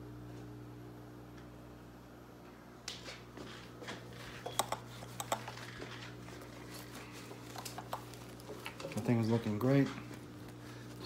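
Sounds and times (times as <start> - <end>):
steady low hum: 0.0 - 11.0
small clicks and taps: 4.5 - 5.6, 7.5 - 9.0.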